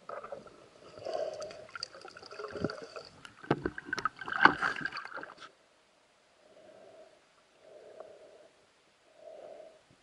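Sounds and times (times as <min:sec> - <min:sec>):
underwater gurgling and knocking: 0:01.7 - 0:05.3.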